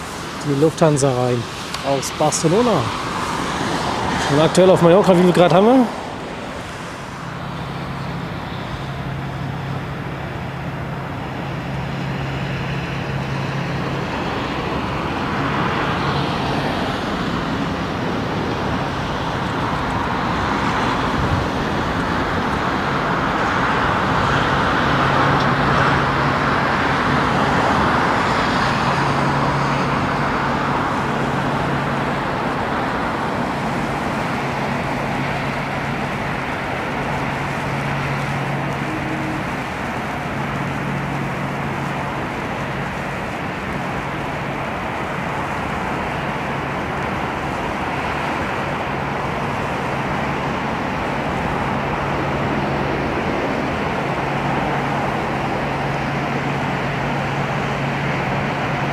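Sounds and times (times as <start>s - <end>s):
jet engines rushing: 0.0s - 58.9s
low steady hum: 28.9s - 48.0s.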